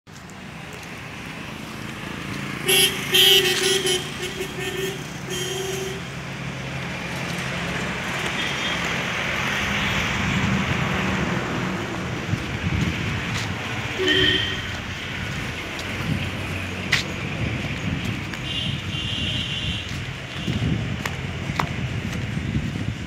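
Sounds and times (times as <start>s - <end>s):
road traffic noise: 0.1s - 23.0s
vehicle horn toots: 2.6s - 6.1s, 14.0s - 14.8s, 18.4s - 20.6s.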